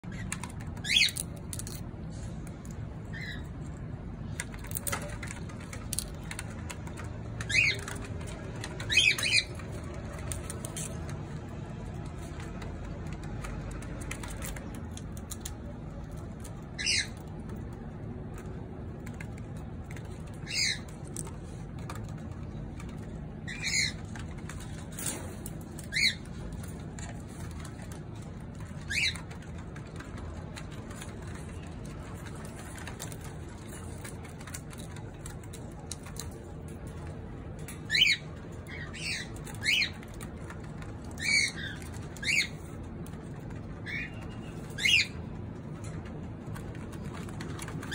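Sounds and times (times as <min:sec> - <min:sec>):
cockatiels calling: 0:00.1 - 0:01.8, 0:03.1 - 0:03.5, 0:07.4 - 0:11.0, 0:16.4 - 0:17.3, 0:20.3 - 0:21.0, 0:23.4 - 0:24.6, 0:25.8 - 0:26.4, 0:28.6 - 0:29.5, 0:37.7 - 0:42.6, 0:43.8 - 0:45.3.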